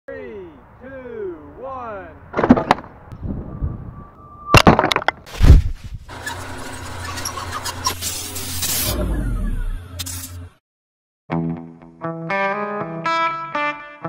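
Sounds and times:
clatter of sharp impacts: 2.4s - 2.9s.

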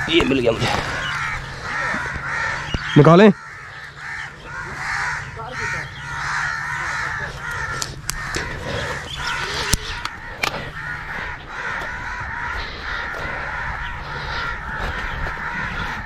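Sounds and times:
crows cawing: 0.0s - 16.0s
sharp clicks: 7.7s - 8.5s.

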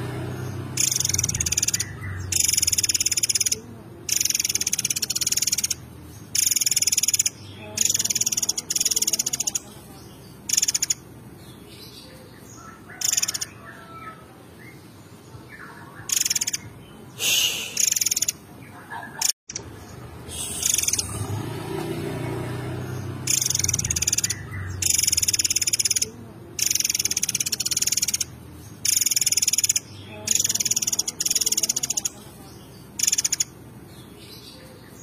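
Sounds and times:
songbird singing fast trills: 0.0s - 21.6s, 22.3s - 35.0s.

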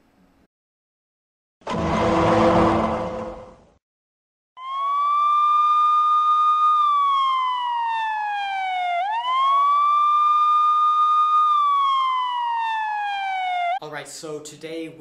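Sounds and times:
wailing siren: 4.6s - 13.8s.

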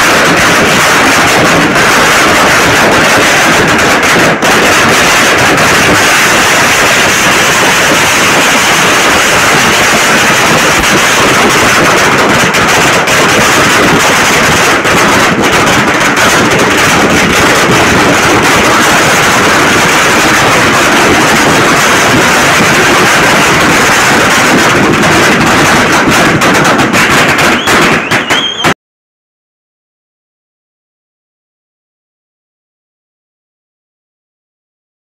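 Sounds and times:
firecrackers crackling: 0.0s - 28.8s.

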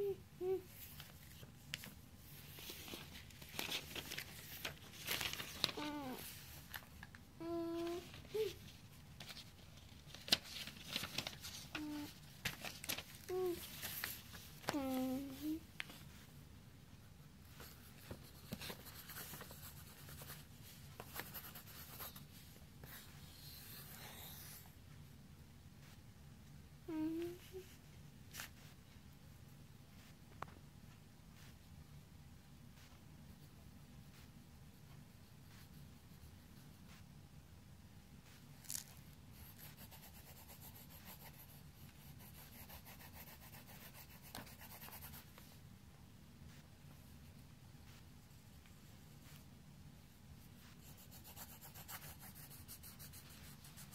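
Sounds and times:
pencil scribbling on paper: 39.3s - 45.4s, 50.4s - 53.9s.

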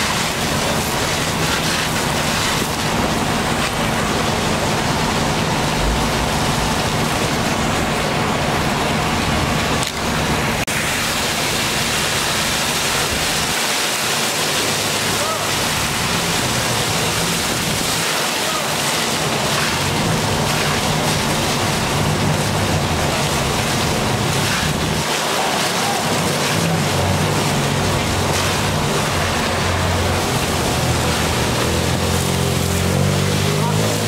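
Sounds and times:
fire hose water spraying: 0.0s - 34.0s
low engine drone: 0.0s - 34.0s.

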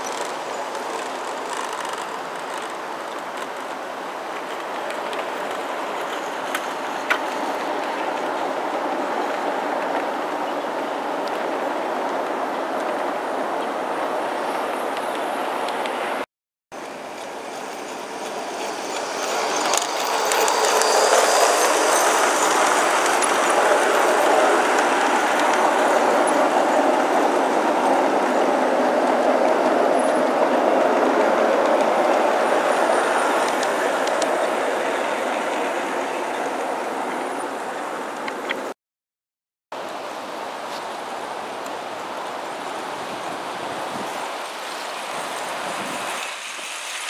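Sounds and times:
model train rumbling on track: 16.9s - 38.6s, 41.0s - 47.0s.

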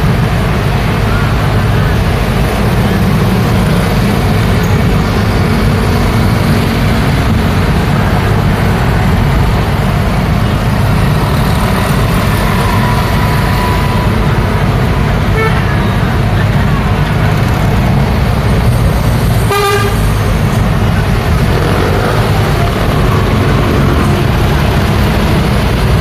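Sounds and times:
road traffic passing: 0.0s - 26.0s.

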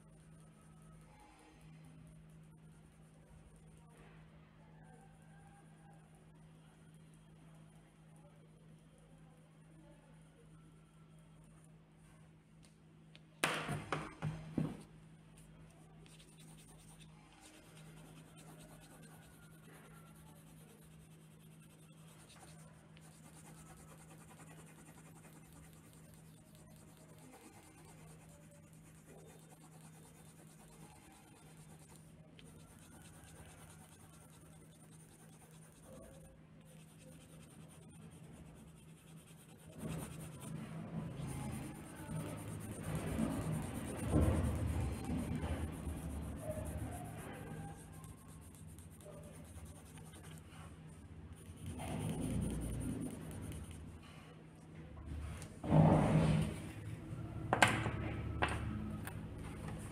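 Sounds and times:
pen scratching on paper: 16.0s - 54.0s, 55.4s - 57.4s, 58.9s - 59.9s.

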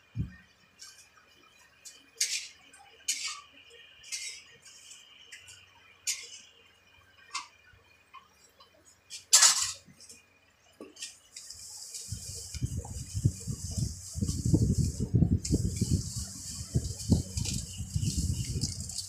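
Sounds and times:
steady hiss: 11.0s - 19.0s.

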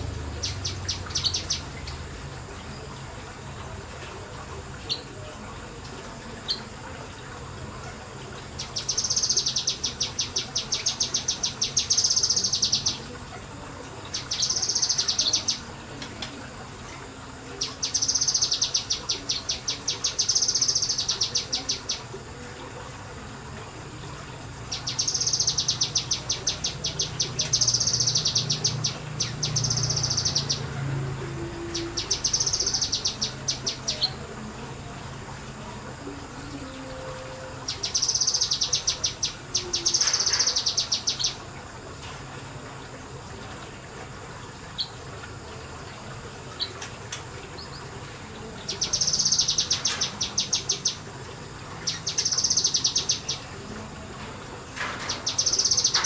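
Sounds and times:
bird singing rapid high notes: 24.7s - 30.8s, 31.5s - 34.2s, 36.4s - 41.4s, 48.6s - 51.1s, 55.0s - 56.0s.

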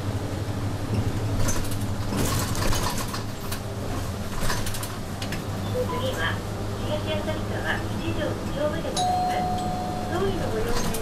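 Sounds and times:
bus engine humming: 0.0s - 11.0s
clicks and rattles of cabin fittings: 0.9s - 5.5s.

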